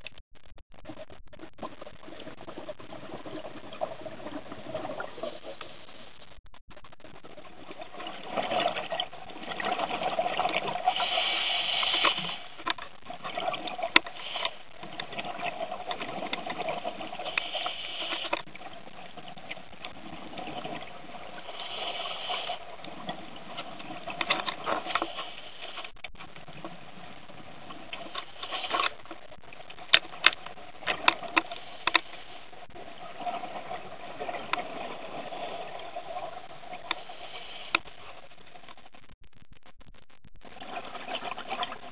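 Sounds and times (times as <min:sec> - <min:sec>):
underwater rushing bubbling water: 0:00.8 - 0:06.2, 0:06.8 - 0:25.6, 0:26.2 - 0:38.6, 0:40.4 - 0:41.9
hiss: 0:10.9 - 0:12.4, 0:17.2 - 0:18.3, 0:21.4 - 0:22.6, 0:37.1 - 0:37.7
sharp clicks and knocks: 0:28.1 - 0:32.1.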